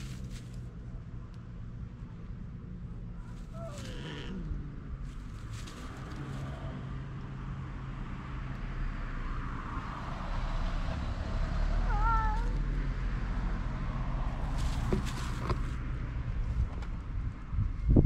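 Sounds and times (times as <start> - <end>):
cat yowling: 3.2 - 4.5, 11.8 - 12.6.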